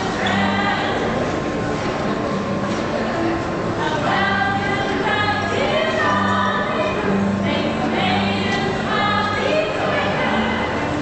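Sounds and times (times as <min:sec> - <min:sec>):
women singing in harmony: 0:00.0 - 0:01.3, 0:03.8 - 0:11.0.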